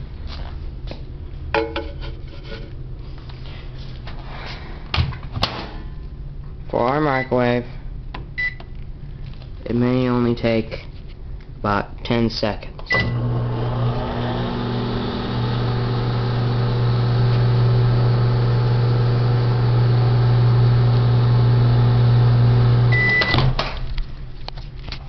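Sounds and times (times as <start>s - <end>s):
microwave beep: 8.4s - 8.7s, 12.9s - 13.5s, 22.4s - 23.5s
microwave oven humming: 12.9s - 23.6s.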